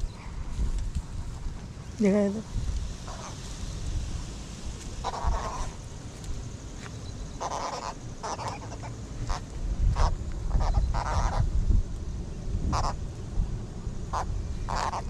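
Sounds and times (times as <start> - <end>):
wind rumble on microphone: 0.0 - 15.0
catfish croaking: 7.4 - 11.5, 12.7 - 13.0, 14.0 - 15.0.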